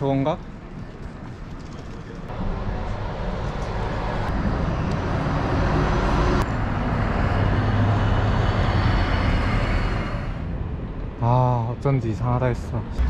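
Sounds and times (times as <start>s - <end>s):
buses driving past: 2.3s - 11.2s.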